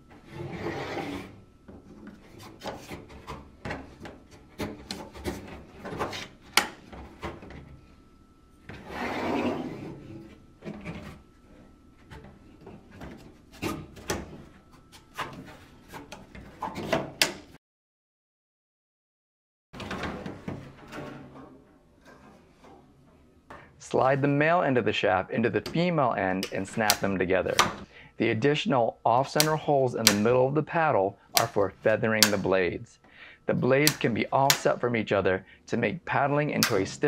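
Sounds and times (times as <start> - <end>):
paddle sections sliding and rubbing: 0.2 - 1.4, 8.7 - 11.2.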